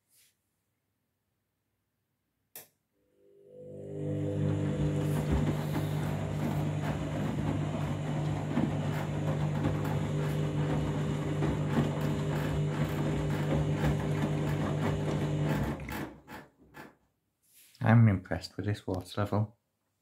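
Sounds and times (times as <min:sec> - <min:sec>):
washing machine motor hum: 0:03.4 - 0:16.3
water and laundry sloshing: 0:04.2 - 0:16.0.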